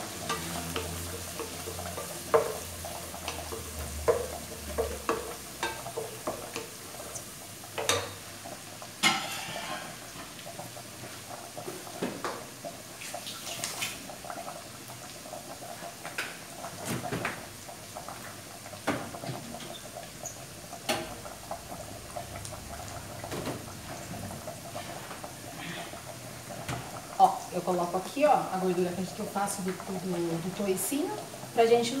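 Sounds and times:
wooden spoon stirring in pot: 0.0s - 8.6s
rice sizzling in fat: 0.0s - 32.0s.

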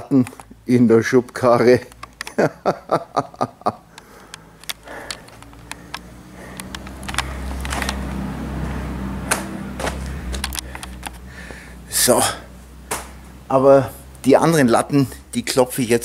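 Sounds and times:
short crunching clicks: 0.0s - 2.4s, 3.8s - 8.2s, 9.3s - 11.3s
camera handling noise: 4.0s - 8.2s, 9.3s - 11.3s
quick footsteps: 4.3s - 8.3s, 9.2s - 11.6s.

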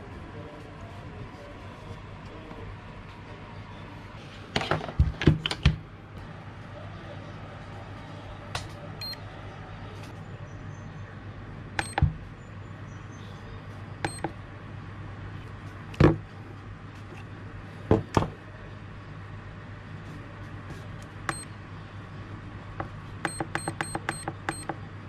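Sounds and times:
steady low hum: 5.8s - 25.0s
charger beeping: 9.0s - 9.2s, 11.8s - 12.1s, 14.0s - 14.4s, 21.3s - 21.5s, 23.3s - 24.8s.

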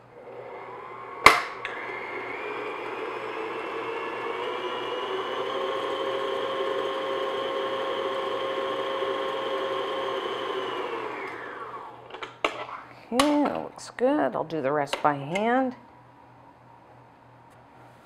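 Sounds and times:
stand mixer motor whining: 0.1s - 12.2s.

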